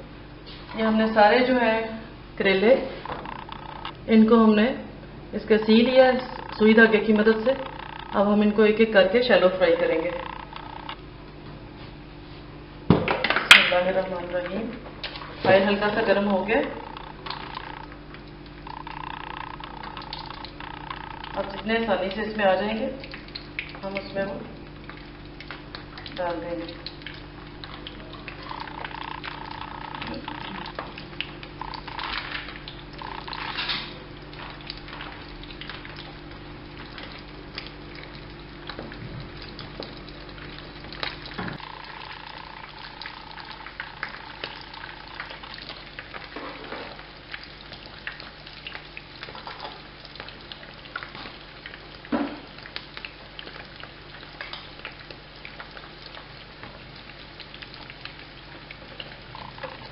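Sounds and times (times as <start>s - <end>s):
oil sizzling in a frying pan: 28.4s - 59.9s.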